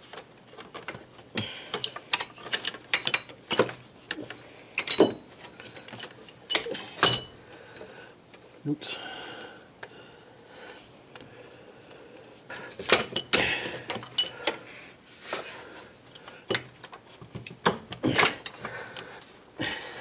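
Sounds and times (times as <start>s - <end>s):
metal clinks knocks and scrapes: 4.8s - 7.4s.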